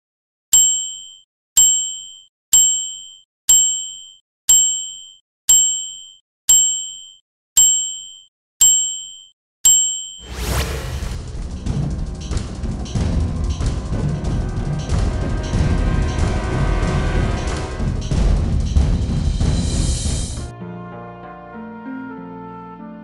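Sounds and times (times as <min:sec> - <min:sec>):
two-tone dings: 0:00.6 - 0:10.2
loud music burst: 0:10.3 - 0:20.5.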